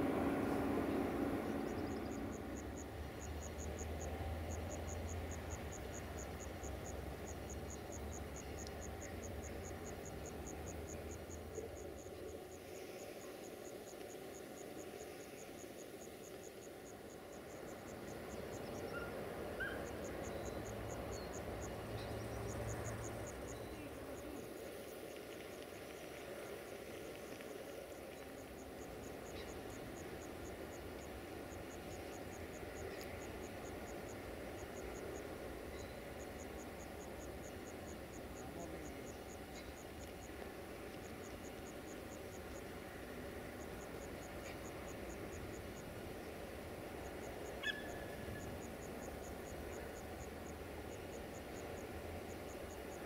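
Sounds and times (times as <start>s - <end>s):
cricket chirping: 0.0s - 53.0s
train passing: 0.0s - 53.0s.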